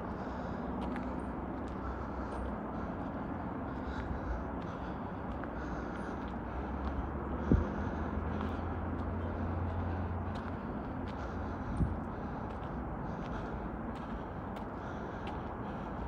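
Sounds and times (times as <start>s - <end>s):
distant traffic rumble: 0.0s - 16.0s
footsteps on dirt trail: 0.8s - 16.0s.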